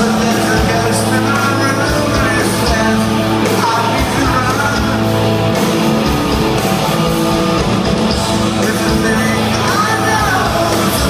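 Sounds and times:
sung lead vocal: 0:00.0 - 0:05.7, 0:07.9 - 0:11.0
live rock band playing: 0:00.0 - 0:11.0.

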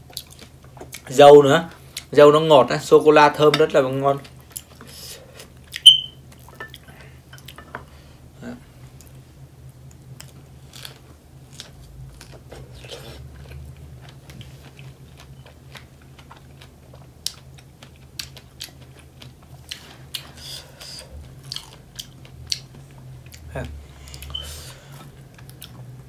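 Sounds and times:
wet chewing clicks and smacks: 0:13.5 - 0:20.3.

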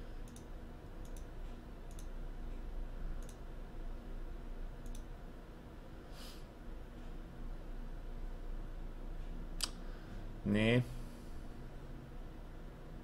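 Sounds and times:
low steady hum: 0:00.0 - 0:13.0
computer mouse clicks: 0:00.2 - 0:01.3, 0:01.9 - 0:02.2, 0:03.2 - 0:03.4, 0:04.8 - 0:05.1.

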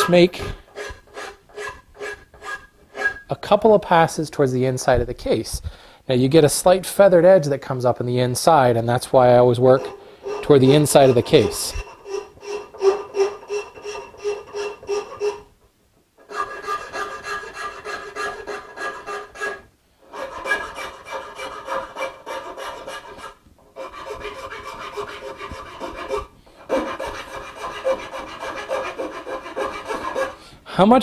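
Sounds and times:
file rasping on wood: 0:00.0 - 0:03.2, 0:09.6 - 0:15.5, 0:16.2 - 0:30.4.

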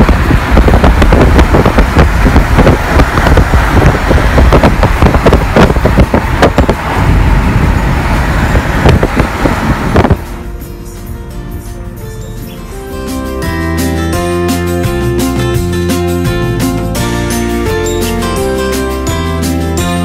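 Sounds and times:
wind buffeting microphone: 0:00.0 - 0:10.6
car road and wind noise: 0:00.0 - 0:20.0.

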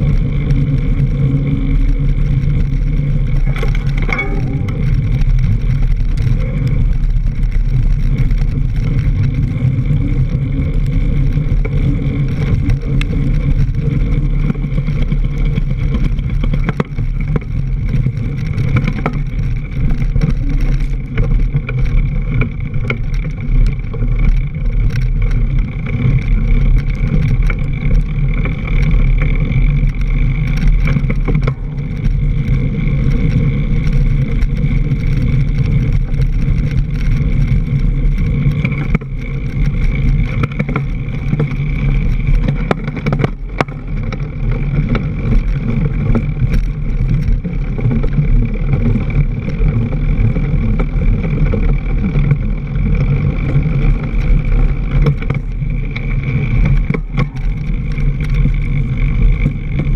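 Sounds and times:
bike knocks and rattles: 0:00.0 - 0:59.9
wind and tyre rumble: 0:00.0 - 0:59.9.

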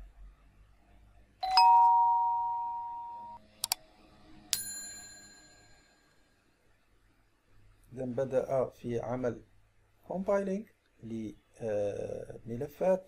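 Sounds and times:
bright bell ding: 0:01.4 - 0:03.4, 0:04.6 - 0:05.8
two-note electronic chime: 0:01.4 - 0:03.4.

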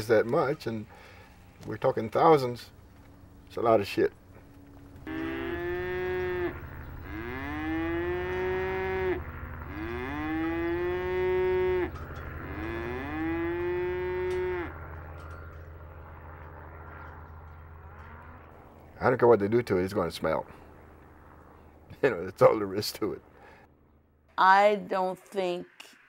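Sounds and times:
low steady hum: 0:00.0 - 0:26.0
cows mooing: 0:05.0 - 0:15.0.

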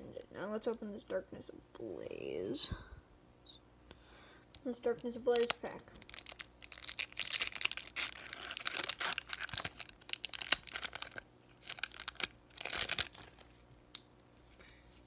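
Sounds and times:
foil wrapper tearing and crinkling: 0:05.0 - 0:13.6.

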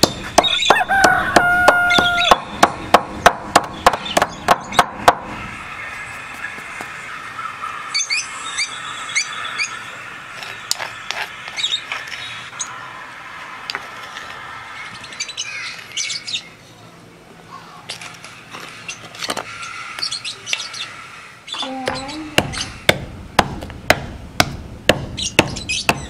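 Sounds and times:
birds chirping: 0:00.0 - 0:23.8, 0:24.9 - 0:26.0.

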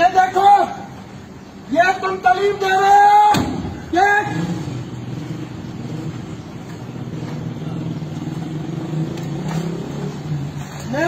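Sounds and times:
vehicle engine running: 0:04.3 - 0:11.0.

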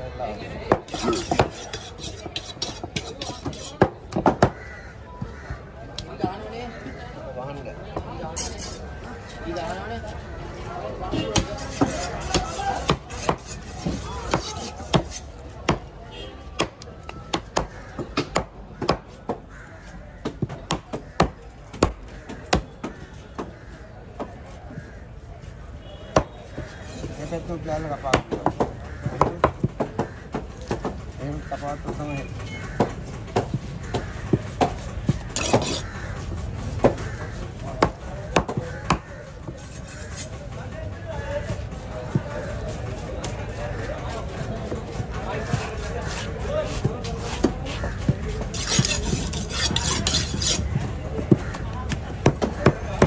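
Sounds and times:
knife chopping on wooden block: 0:00.7 - 0:04.6, 0:11.3 - 0:15.9, 0:16.6 - 0:19.4, 0:32.8 - 0:35.8, 0:47.4 - 0:50.6.

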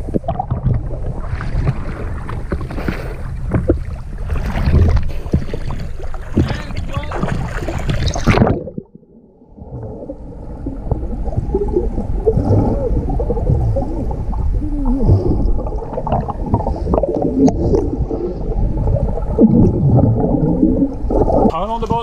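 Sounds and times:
underwater bubbles gurgling: 0:00.0 - 0:22.0
sliding bubble chirps: 0:06.4 - 0:21.6.

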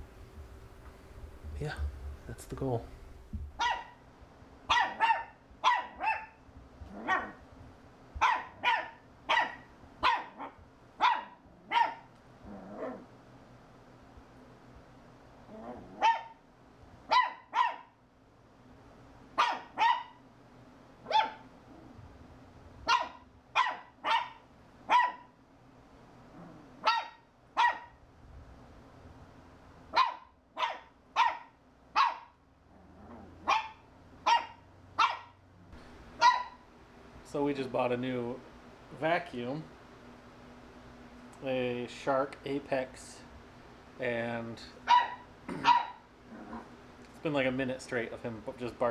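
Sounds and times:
puppy barking: 0:03.6 - 0:04.0, 0:04.7 - 0:07.4, 0:08.2 - 0:12.1, 0:15.6 - 0:16.4, 0:17.1 - 0:18.0, 0:19.4 - 0:20.2, 0:21.0 - 0:21.5, 0:22.8 - 0:25.4, 0:26.8 - 0:28.0, 0:29.9 - 0:32.4, 0:33.0 - 0:35.4, 0:36.2 - 0:36.6, 0:44.8 - 0:46.7.

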